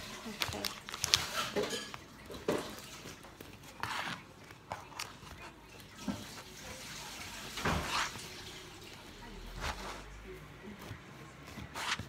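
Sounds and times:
knife cutting bread crust: 0:03.3 - 0:06.3, 0:10.8 - 0:12.0.

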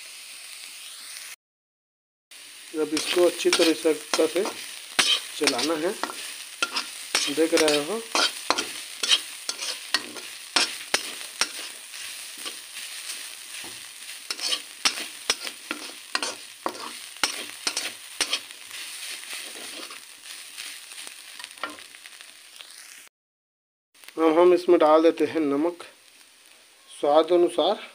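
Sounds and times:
vegetables sizzling: 0:00.0 - 0:01.4, 0:02.3 - 0:23.1, 0:24.0 - 0:27.9
steel spatula scraping a pan: 0:02.9 - 0:21.9.

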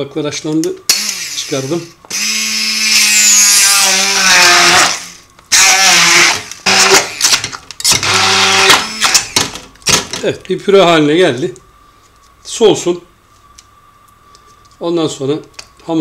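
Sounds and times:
stick blender motor whining: 0:00.9 - 0:09.5.

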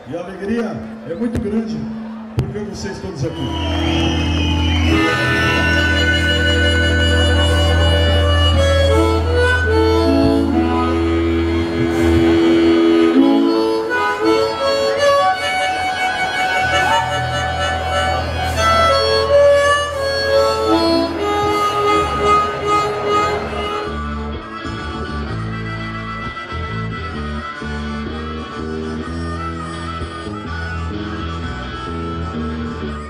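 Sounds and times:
amplified harmonica solo: 0:00.8 - 0:33.0
live rock band: 0:03.4 - 0:33.0
steady bass line: 0:03.6 - 0:33.0.

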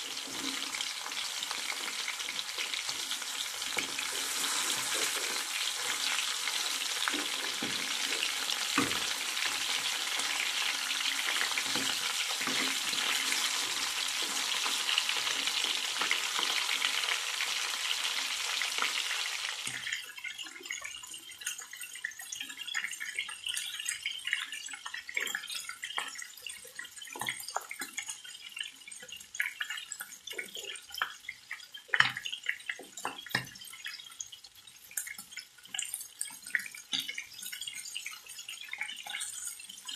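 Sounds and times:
oil crackling and popping: 0:00.0 - 0:23.2
chicken sizzling in hot oil: 0:00.0 - 0:39.9
spatula scraping a pan: 0:00.2 - 0:09.9.

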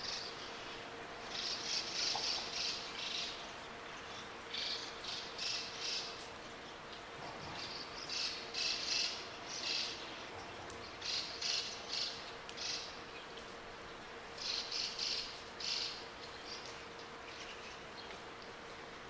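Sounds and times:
faint steady hum: 0:00.0 - 0:19.0
small birds chirping: 0:14.4 - 0:18.4.

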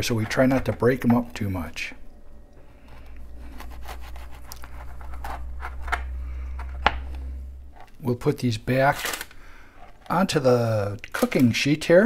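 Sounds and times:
knife sawing through biscotti: 0:03.4 - 0:05.8.

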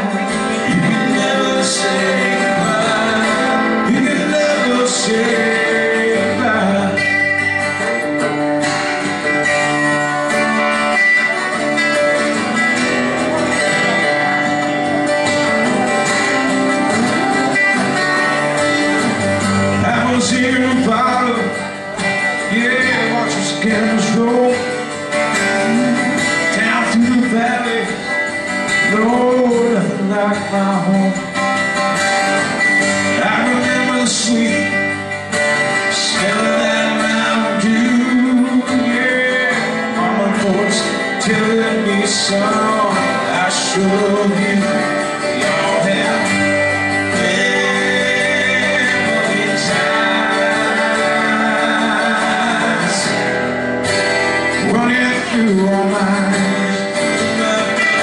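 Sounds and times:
acoustic guitars playing country: 0:00.0 - 0:58.0.

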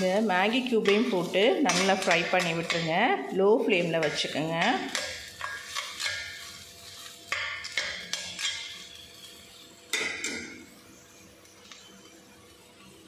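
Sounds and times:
metal spatula scraping a pan: 0:00.0 - 0:11.8
masala frying: 0:00.0 - 0:13.0.

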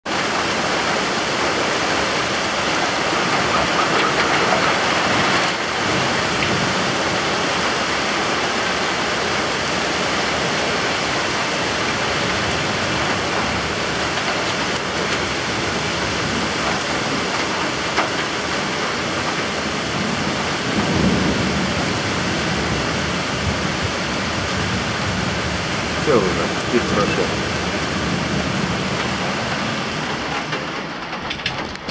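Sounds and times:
heavy rain pouring: 0:00.0 - 0:31.9.

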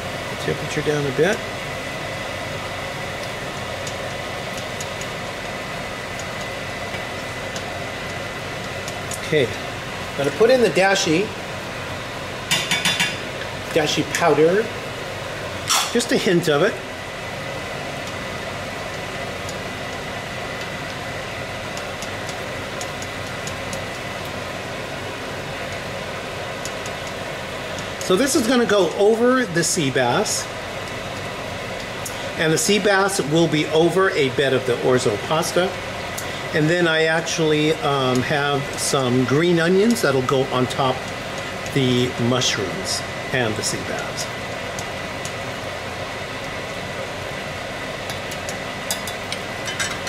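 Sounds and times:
exhaust fan humming: 0:00.0 - 0:50.0
mushrooms popping in saucepan: 0:03.1 - 0:09.3.

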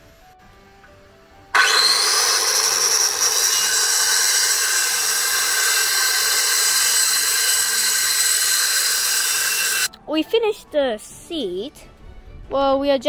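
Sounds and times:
circular saw cutting wood: 0:01.6 - 0:09.9.

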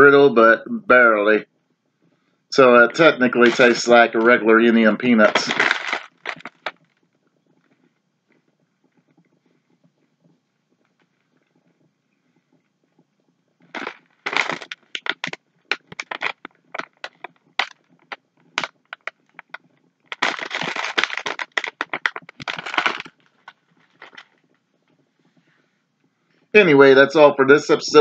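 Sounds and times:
plastic candy bag crinkling: 0:02.9 - 0:06.7, 0:13.8 - 0:17.7, 0:18.6 - 0:24.3.

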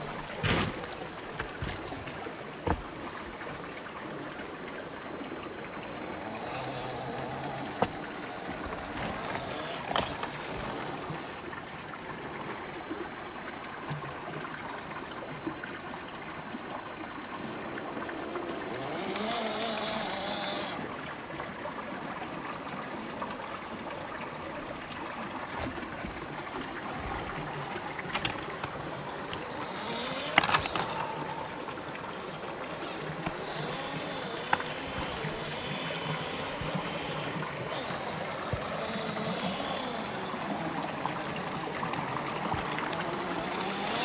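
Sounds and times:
rc car motor whining: 0:00.0 - 0:11.6, 0:17.4 - 0:21.5, 0:26.9 - 0:44.0
stream running over rocks: 0:00.0 - 0:44.0.

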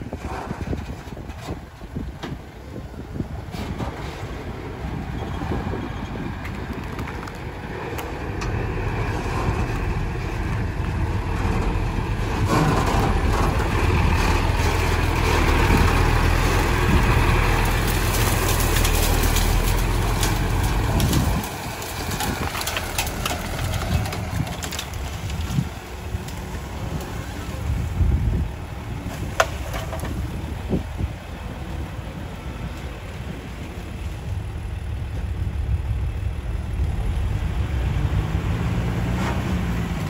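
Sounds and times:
truck diesel engine under load: 0:00.0 - 0:40.0
brush snapping against truck: 0:12.4 - 0:27.2, 0:29.1 - 0:30.8.

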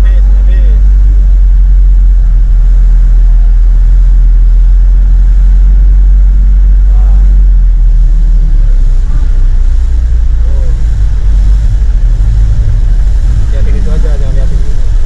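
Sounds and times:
truck engine rumbling: 0:00.0 - 0:15.0.

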